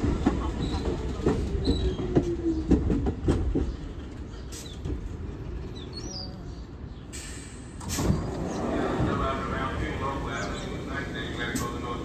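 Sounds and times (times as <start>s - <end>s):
train wheels knocking on rail joints: 0.0s - 4.1s
train low rumble: 0.0s - 12.0s.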